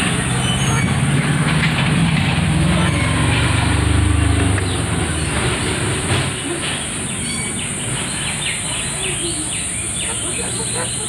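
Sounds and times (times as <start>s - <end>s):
passing vehicle engine rumble: 0.0s - 11.0s
bird chirps: 7.1s - 11.0s.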